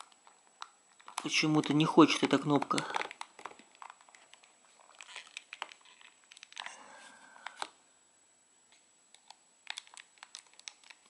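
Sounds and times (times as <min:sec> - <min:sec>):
hard plastic clicks and scraping: 0:00.0 - 0:06.7.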